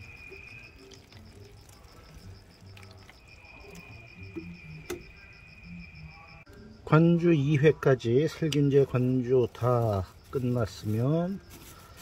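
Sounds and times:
water sprinkling on leaves: 0.0 - 3.9, 8.6 - 12.0
insects chirping: 0.0 - 12.0.

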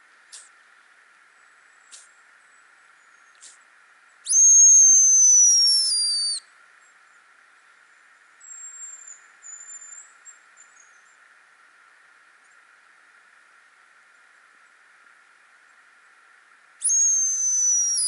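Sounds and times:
decoy whistle: 4.3 - 6.4, 16.8 - 18.0
distant bird whistles: 4.3 - 6.5, 8.4 - 11.1, 16.8 - 18.0.

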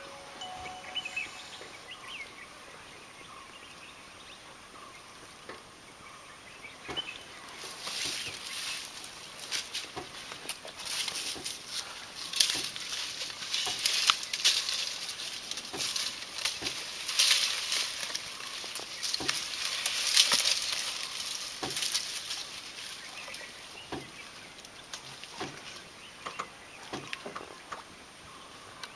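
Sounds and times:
leaves and branches rustling: 0.0 - 28.9
twigs snapping: 9.4 - 27.8.

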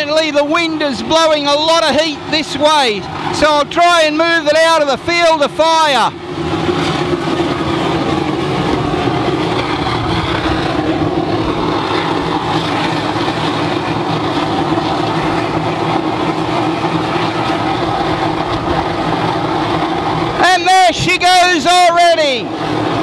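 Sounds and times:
low hum: 0.0 - 23.0
oil burner roaring: 0.0 - 23.0.

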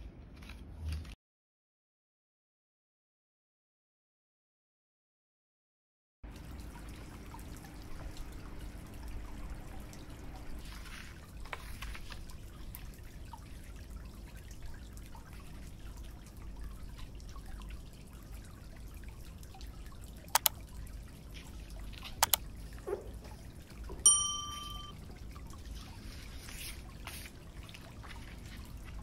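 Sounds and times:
low room rumble: 6.2 - 29.0
paper cards rustling: 10.7 - 12.3
sharp clicks: 20.3 - 20.6, 22.2 - 22.4.

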